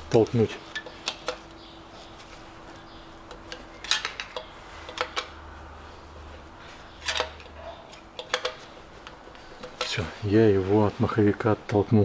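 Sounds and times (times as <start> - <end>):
hand tool clinking on metal: 9.6 - 10.1.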